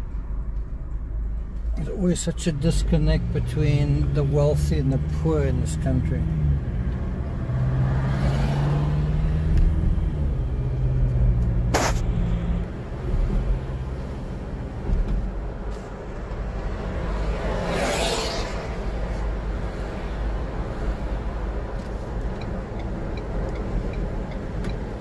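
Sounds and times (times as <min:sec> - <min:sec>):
car engine hum: 0:00.0 - 0:25.0
sharp click: 0:11.7 - 0:12.1
brief whoosh: 0:11.7 - 0:12.6, 0:17.6 - 0:18.9.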